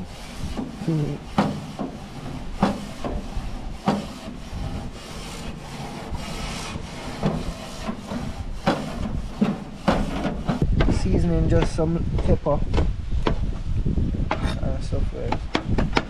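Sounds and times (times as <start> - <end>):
grill brush scraping metal grates: 0.0 - 10.6.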